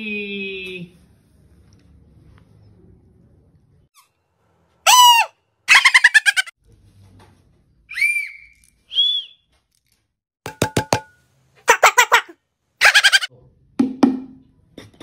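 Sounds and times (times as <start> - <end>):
rising and falling whistle notes: 7.9 - 9.5.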